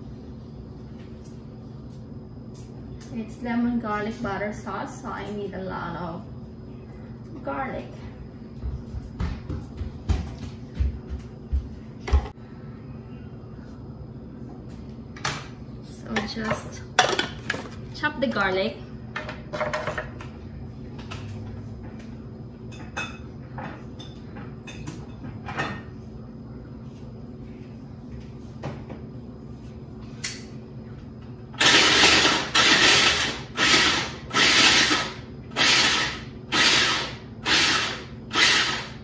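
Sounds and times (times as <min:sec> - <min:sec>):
food chopper motor whirring: 0:31.6 - 0:39.0.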